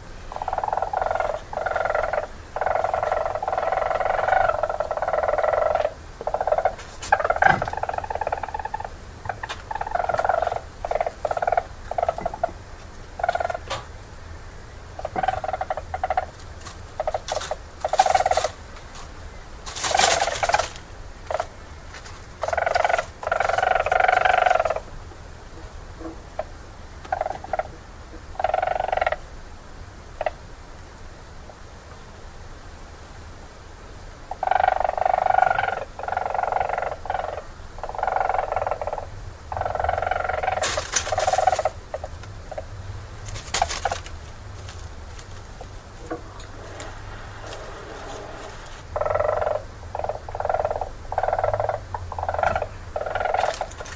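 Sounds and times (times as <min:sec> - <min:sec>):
weasel pulsing calls: 0:00.3 - 0:12.6, 0:13.2 - 0:13.8, 0:15.0 - 0:16.4, 0:17.0 - 0:18.6, 0:19.8 - 0:21.5, 0:22.4 - 0:24.9, 0:28.4 - 0:29.2, 0:34.3 - 0:42.7, 0:46.0 - 0:53.9.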